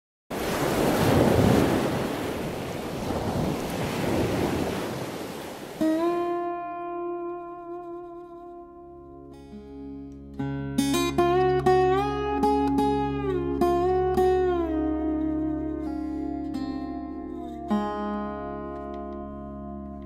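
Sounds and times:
wind buffeting microphone: 0:00.4 - 0:05.8
plucked acoustic guitar music: 0:05.8 - 0:20.0.

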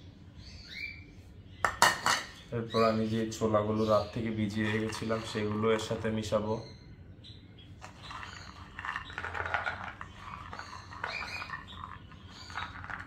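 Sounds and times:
chickpeas rattling and sliding: 0:04.5 - 0:06.0, 0:07.8 - 0:13.0.

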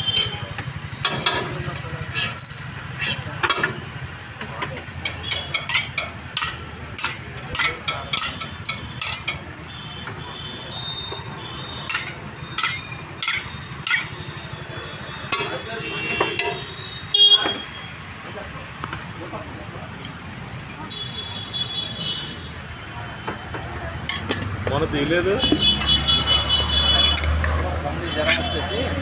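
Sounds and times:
batter frying: 0:00.5 - 0:10.2, 0:11.8 - 0:15.6
spoons and cups clinking: 0:05.0 - 0:09.5, 0:11.9 - 0:14.4, 0:15.3 - 0:16.8.

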